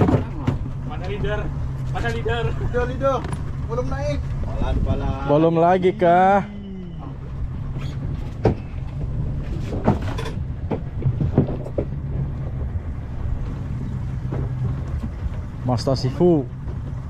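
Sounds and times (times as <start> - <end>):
boat engine humming: 0.0 - 17.0
sharp knocks and clicks: 8.2 - 12.8.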